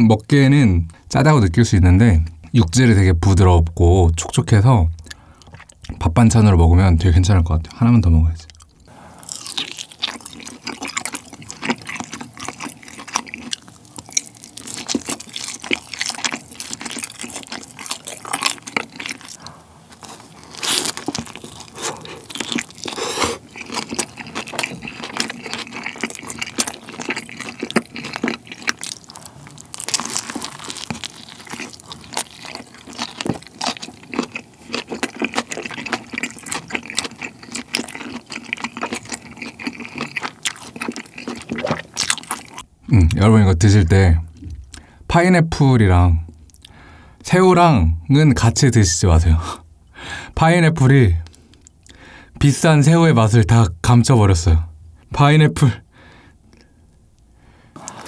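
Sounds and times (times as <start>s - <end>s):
wet chewing and mouth sounds: 4.9s - 6.0s, 8.4s - 43.2s, 46.2s - 46.9s, 51.2s - 52.0s, 57.7s - 58.0s.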